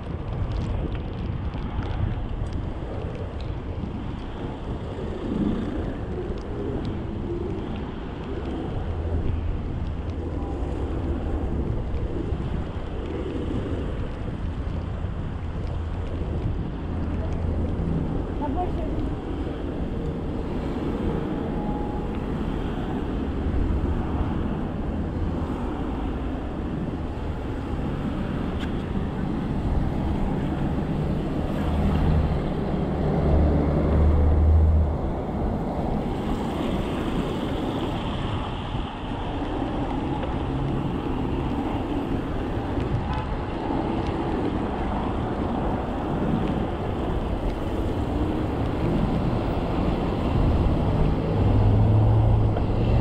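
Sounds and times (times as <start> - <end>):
road noise: 0.0 - 53.0
wind on microphone: 0.0 - 53.0.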